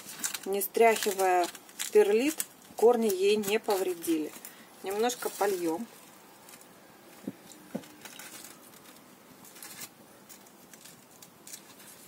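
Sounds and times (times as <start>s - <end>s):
soft rustling of soil: 0.0s - 12.0s.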